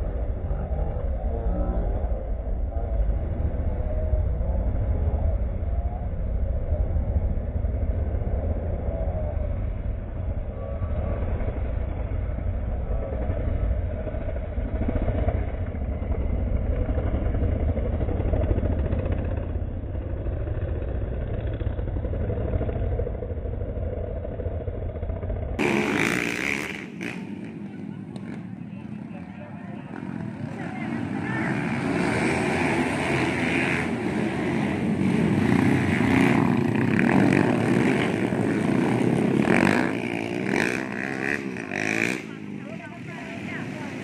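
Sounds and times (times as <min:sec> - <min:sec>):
heavy low rumble: 0:00.0 - 0:26.1
dirt bike engines revving: 0:00.0 - 0:44.0.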